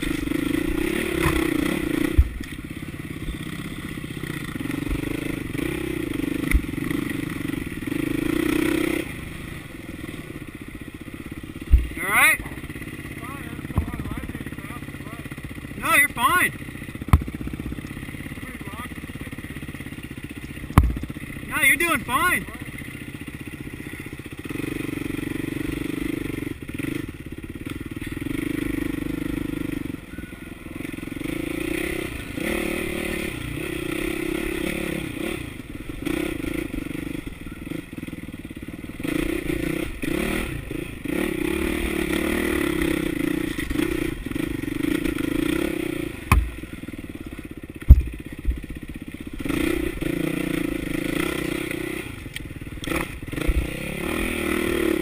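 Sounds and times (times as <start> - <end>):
dirt bike engine revving: 0.0 - 55.0
sharp knocks: 17.1 - 17.4, 20.8 - 21.1, 46.3 - 46.6, 47.8 - 48.6.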